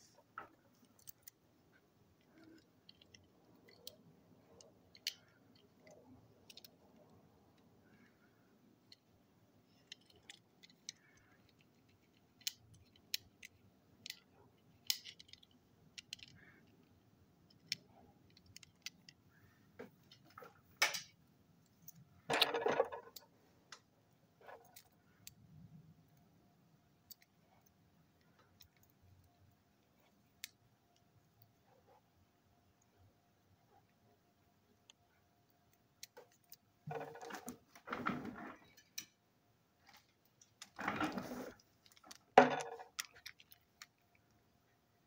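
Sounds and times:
toy cars clicking: 0:02.2 - 0:07.1, 0:09.7 - 0:16.9, 0:17.5 - 0:19.2, 0:40.2 - 0:44.2.

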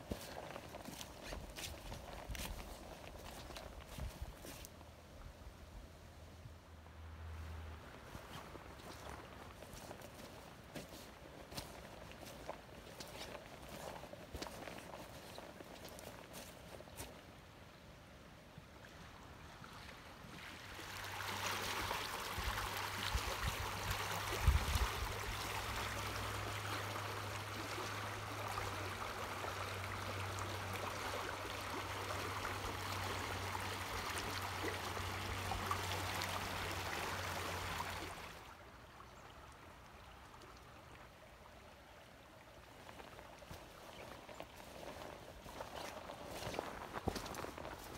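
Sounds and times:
river water rushing over riffle: 0:20.3 - 0:38.6.

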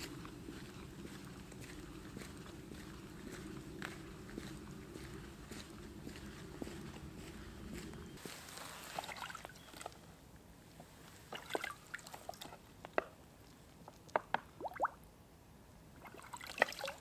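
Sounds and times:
air bubbles plinking: 0:14.6 - 0:15.0
water gurgling into bottle: 0:14.6 - 0:15.0.

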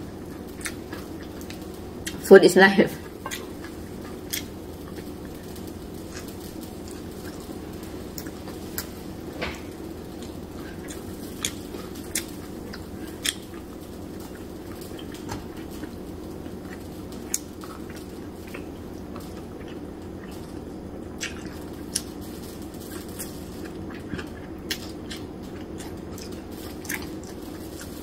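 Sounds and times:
steady low hum: 0:00.0 - 0:28.0
chewing and lip-smacking: 0:00.3 - 0:02.2, 0:10.2 - 0:15.2, 0:21.2 - 0:22.1, 0:22.9 - 0:28.0.

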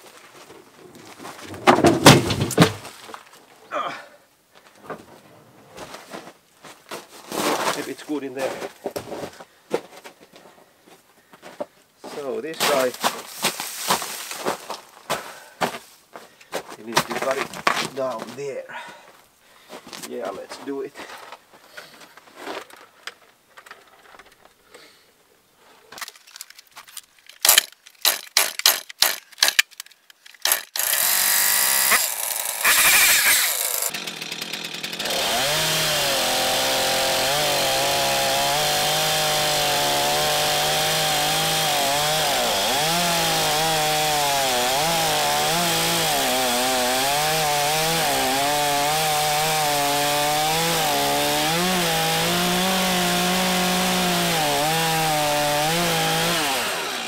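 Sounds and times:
chainsaw cutting wood: 0:01.5 - 0:02.8, 0:27.4 - 0:29.7, 0:30.4 - 0:57.0.

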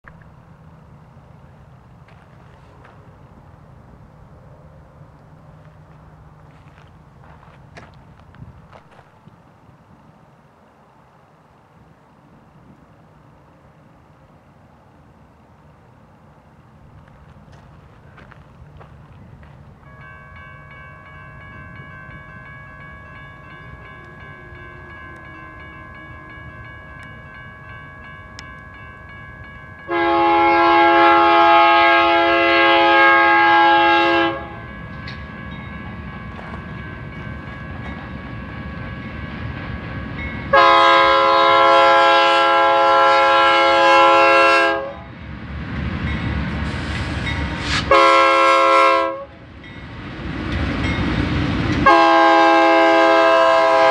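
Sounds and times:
freight train rumbling past: 0:00.0 - 0:53.9
train air horn blasts: 0:23.8 - 0:26.7, 0:29.9 - 0:34.7, 0:40.5 - 0:45.1, 0:47.6 - 0:49.4, 0:51.8 - 0:53.9.

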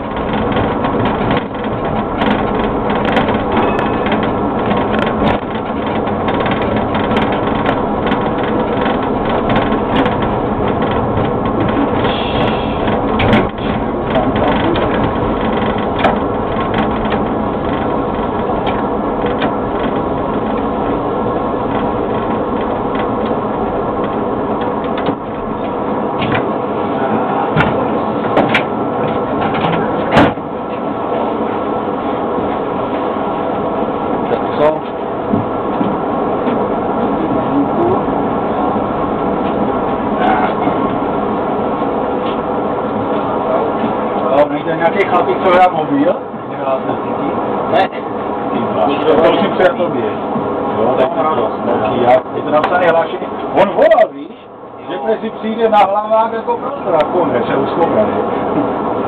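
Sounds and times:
sharp clicks and knocks: 0:00.0 - 0:21.0, 0:21.7 - 0:26.5, 0:27.6 - 0:30.9
tram drive hum: 0:00.0 - 0:59.0.

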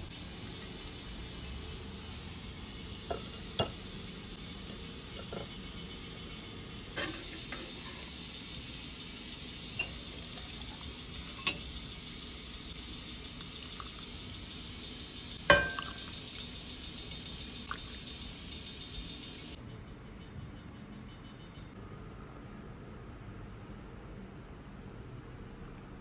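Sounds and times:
steady low hiss: 0:00.0 - 0:19.6
ladle clinking on metal: 0:03.1 - 0:03.8, 0:09.7 - 0:10.6, 0:11.2 - 0:11.7, 0:15.4 - 0:16.6
soup pouring and splashing: 0:09.8 - 0:11.6, 0:13.3 - 0:14.4, 0:17.6 - 0:18.2.

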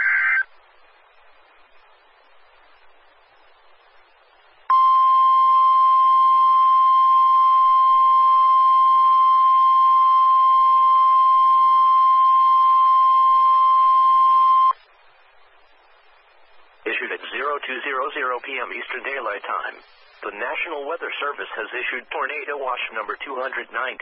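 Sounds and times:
steady high warning alarm tone: 0:04.7 - 0:14.7.

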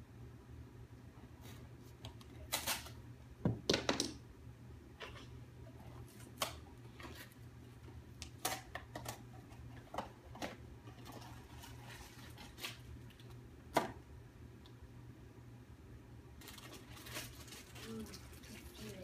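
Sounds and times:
cardboard packaging crinkling and tearing: 0:10.9 - 0:13.4, 0:16.4 - 0:19.0.

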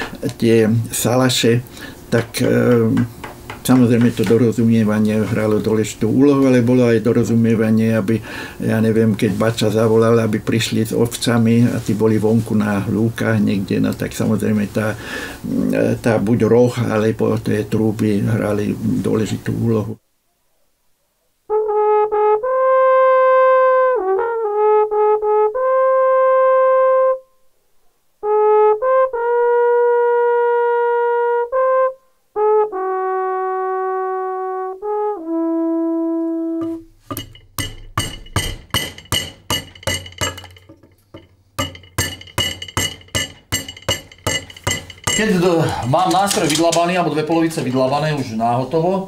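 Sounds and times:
wooden trumpet long notes: 0:21.5 - 0:27.5, 0:28.2 - 0:36.9.

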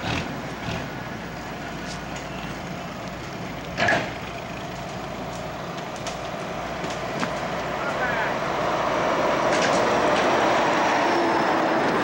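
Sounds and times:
distant truck engine running: 0:00.0 - 0:12.0.

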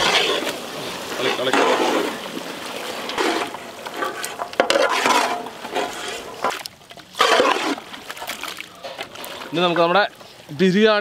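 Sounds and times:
spatula scraping metal pot: 0:00.0 - 0:00.6, 0:01.2 - 0:02.2, 0:03.0 - 0:06.6, 0:07.2 - 0:09.9.

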